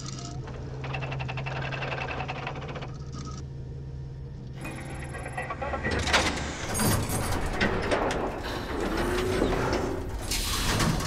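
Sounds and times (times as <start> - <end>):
computer terminal clicks and beeps: 0.0 - 3.4, 4.6 - 6.5
electrical hum: 0.0 - 11.0.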